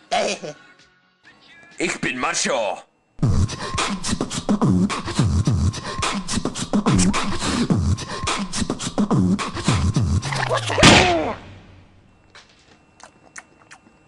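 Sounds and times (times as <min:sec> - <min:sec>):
hip-hop beat: 0:03.2 - 0:10.2.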